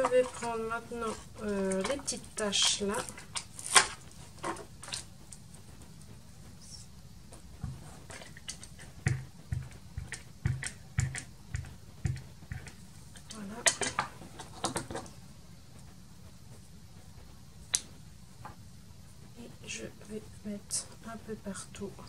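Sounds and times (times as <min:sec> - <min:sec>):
stamp knocking on ink pad: 0:09.0 - 0:12.8.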